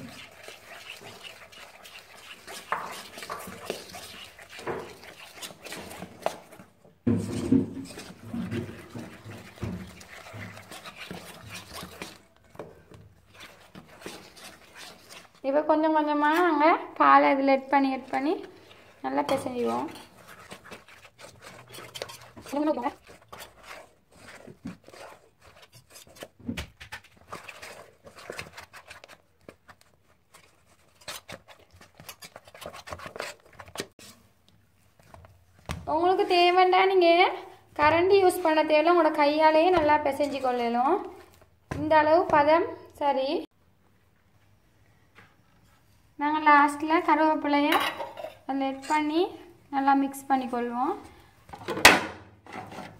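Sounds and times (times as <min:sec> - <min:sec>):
metal spoon scraping steel bowl: 0:00.0 - 0:06.6, 0:07.2 - 0:12.6, 0:13.3 - 0:15.5, 0:18.6 - 0:26.4
hand kneading dough in steel bowl: 0:00.0 - 0:43.6, 0:45.0 - 0:52.9.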